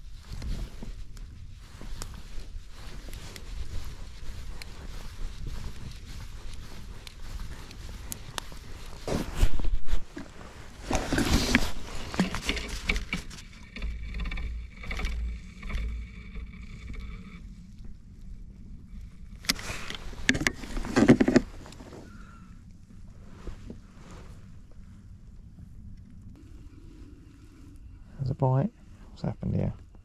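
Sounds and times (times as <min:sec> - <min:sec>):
rustling and knocking of fishing rod: 0:00.0 - 0:17.1, 0:19.4 - 0:22.2
faint steady whine: 0:13.4 - 0:30.0.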